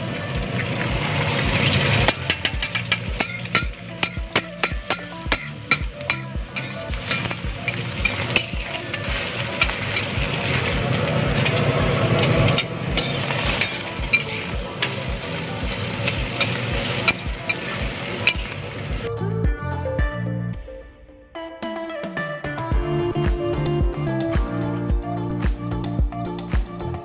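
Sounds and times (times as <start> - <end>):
eggs sizzling on griddle: 0.0 - 19.1
spatula scraping metal griddle: 1.0 - 18.8.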